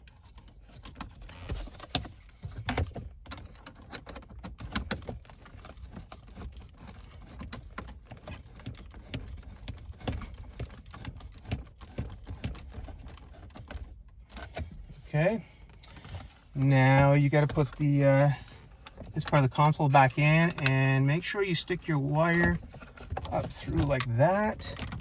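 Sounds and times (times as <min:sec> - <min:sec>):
plastic trim clicks and rattles: 0:20.3 - 0:20.7.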